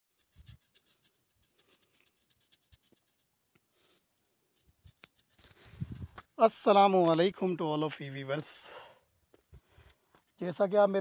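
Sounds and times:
light scratching: 0:00.1 - 0:03.3, 0:04.5 - 0:06.8.

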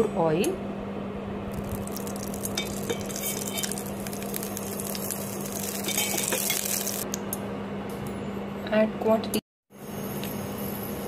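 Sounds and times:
steady low hum: 0:00.0 - 0:11.0
oil crackling in metal pan: 0:01.5 - 0:07.1.

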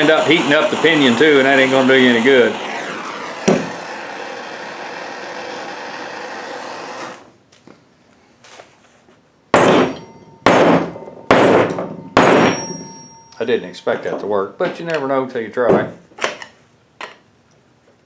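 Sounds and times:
propane torch hissing: 0:00.0 - 0:07.3.

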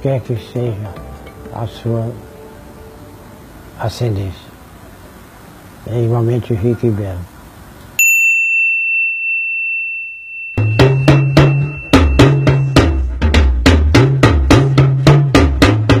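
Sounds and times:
high steady tone: 0:08.0 - 0:13.2
drums and bass line: 0:10.6 - 0:16.0.

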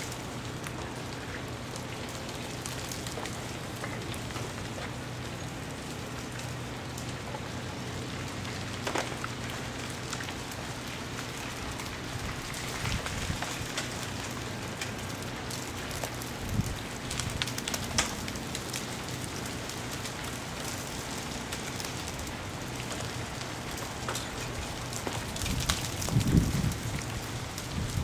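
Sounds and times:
ice falling from branches: 0:00.0 - 0:28.0.

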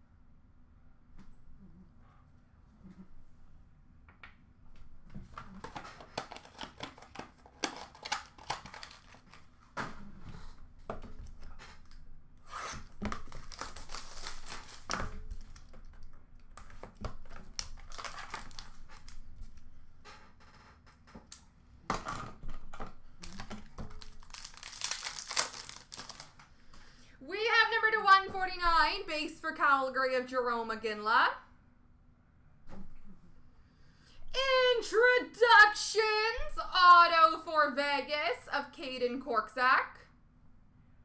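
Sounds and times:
wrappers and cardboard rustling: 0:05.2 - 0:10.2, 0:12.8 - 0:19.6, 0:23.2 - 0:26.4.

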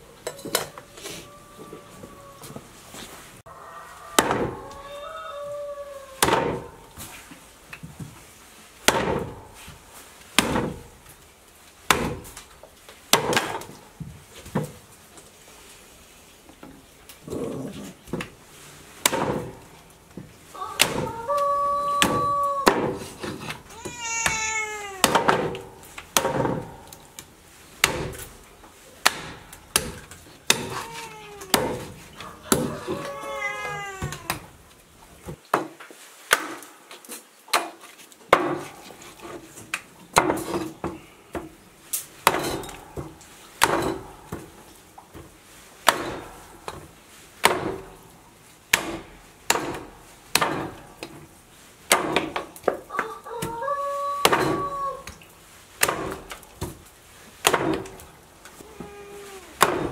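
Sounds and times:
cleaver chopping on wooden block: 0:29.0 - 0:30.8, 0:48.7 - 0:50.8, 0:59.6 - 0:59.9.

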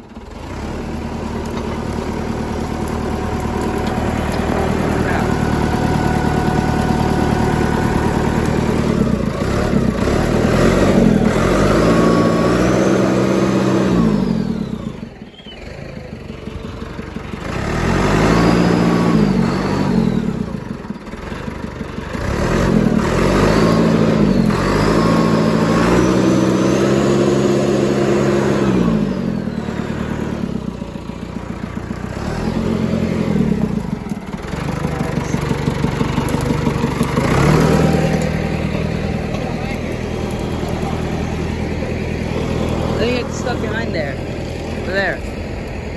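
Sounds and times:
diesel engine revving: 0:00.0 - 0:45.9.

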